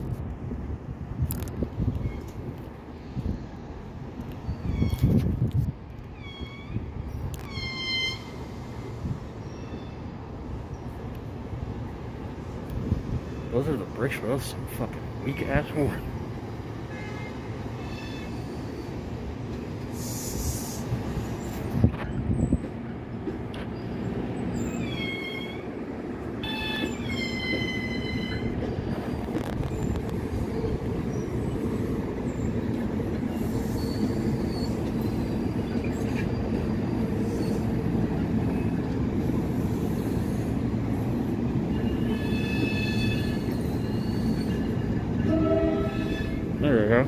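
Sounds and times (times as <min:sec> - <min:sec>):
train wheels rumbling on track: 0:00.0 - 0:47.0
high-pitched wheel squeal: 0:24.5 - 0:25.7, 0:26.4 - 0:31.6, 0:33.3 - 0:36.6, 0:41.7 - 0:46.5.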